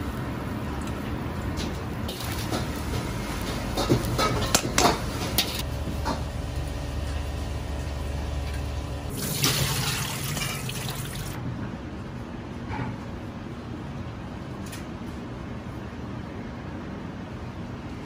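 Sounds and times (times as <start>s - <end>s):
tap water running into bowl: 9.1s - 11.4s
water pouring through colander: 9.1s - 11.4s.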